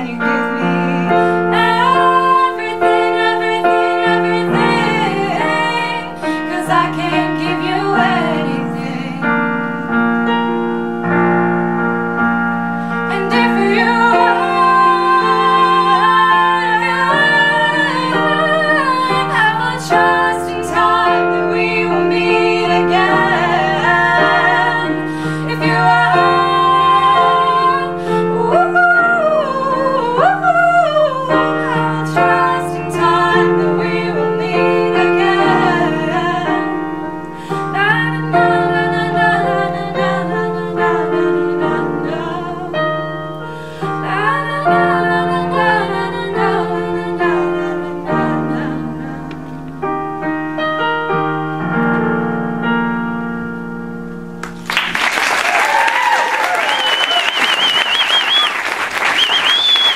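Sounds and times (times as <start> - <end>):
women singing: 0.0 - 9.8, 13.0 - 49.7
electronic keyboard chords: 0.0 - 54.8.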